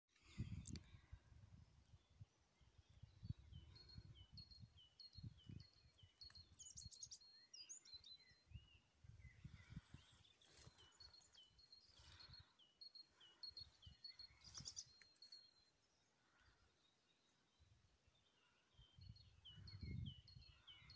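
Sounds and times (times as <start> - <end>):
songbird chirping: 1.8 - 20.9.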